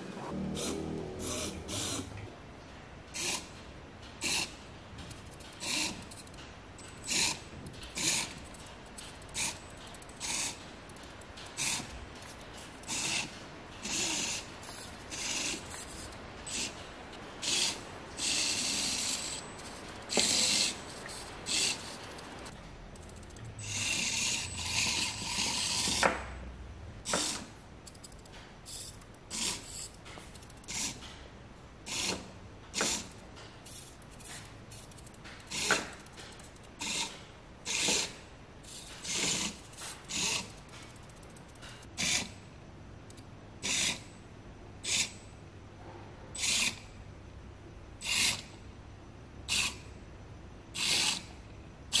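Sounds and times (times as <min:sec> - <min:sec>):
toy car motor whirring: 0:00.3 - 0:02.2, 0:03.2 - 0:03.5, 0:04.2 - 0:04.5, 0:05.1 - 0:06.4, 0:07.0 - 0:16.8, 0:17.4 - 0:26.1, 0:27.1 - 0:31.1, 0:31.9 - 0:41.3, 0:41.9 - 0:42.3, 0:43.6 - 0:44.0, 0:46.4 - 0:46.8, 0:48.0 - 0:48.5, 0:49.5 - 0:49.8, 0:50.8 - 0:51.3.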